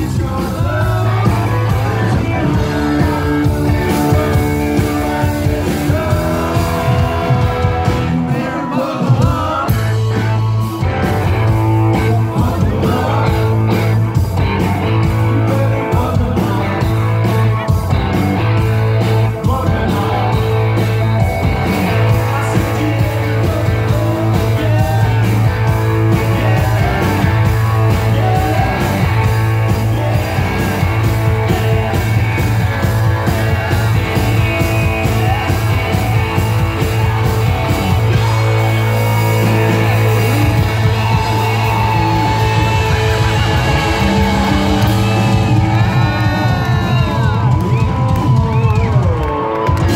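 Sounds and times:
drums: 0:00.0 - 0:49.9
electric guitar: 0:00.0 - 0:49.9
live rock band playing: 0:00.0 - 0:49.9
low bass notes: 0:00.0 - 0:49.9
man singing: 0:00.0 - 0:49.9.

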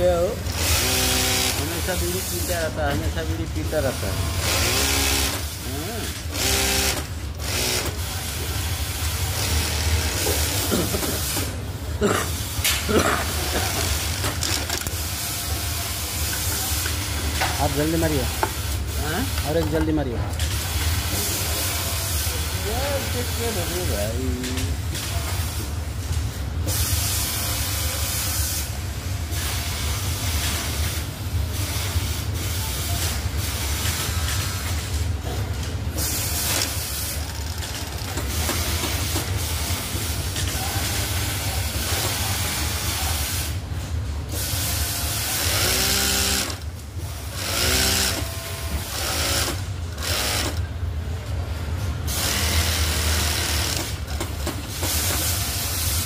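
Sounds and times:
low hum of machinery: 0:00.0 - 0:56.0
sewing machine running: 0:00.4 - 0:02.7, 0:04.2 - 0:10.6, 0:44.5 - 0:50.7, 0:52.1 - 0:54.2.

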